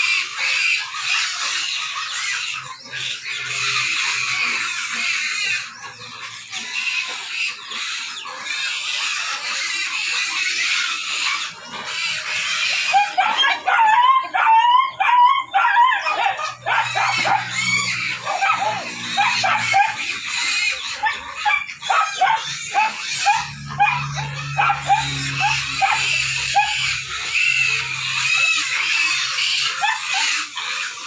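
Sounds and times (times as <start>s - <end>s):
high chirping chorus: 0.0s - 31.0s
high whining squeals: 16.2s - 30.0s.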